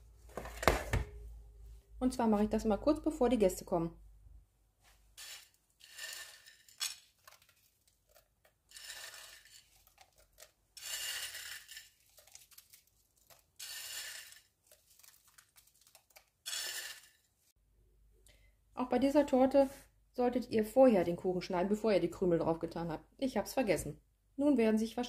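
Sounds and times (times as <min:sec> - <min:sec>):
biscuit pieces rattling off plate: 0:05.2 - 0:17.3.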